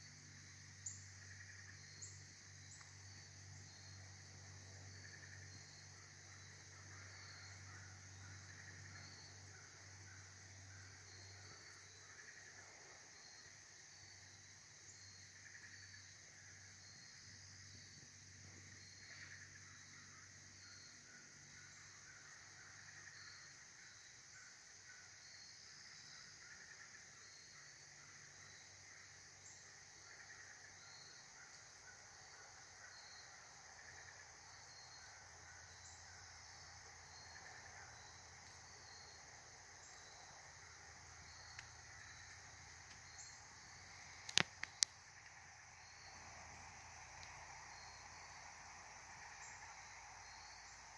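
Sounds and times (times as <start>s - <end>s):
insect chorus hiss: 0.0s - 50.9s
short insect chirp: 0.0s - 50.9s
low steady hum: 27.4s - 50.9s.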